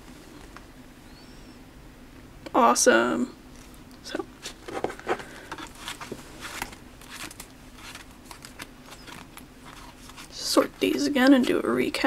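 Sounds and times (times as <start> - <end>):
trading cards tapping and rustling: 4.5 - 11.5.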